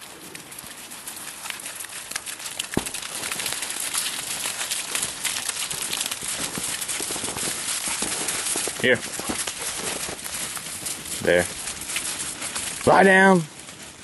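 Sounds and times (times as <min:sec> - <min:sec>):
hooves crunching through snow: 0:00.0 - 0:14.0.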